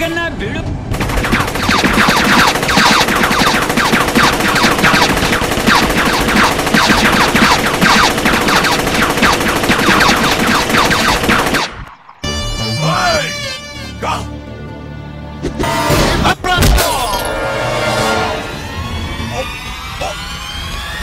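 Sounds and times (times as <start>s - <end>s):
rapid machine-gun fire: 0.9s - 11.8s.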